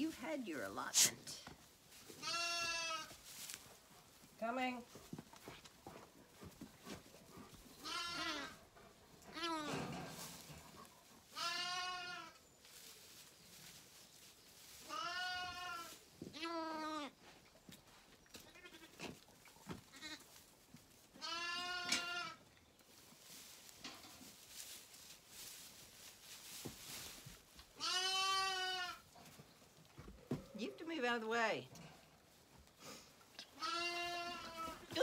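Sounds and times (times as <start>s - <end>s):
lambs bleating: 2.2s - 3.1s, 7.8s - 8.6s, 11.4s - 12.4s, 14.9s - 17.0s, 18.5s - 19.0s, 21.2s - 22.4s, 27.8s - 29.0s, 33.6s - 34.8s.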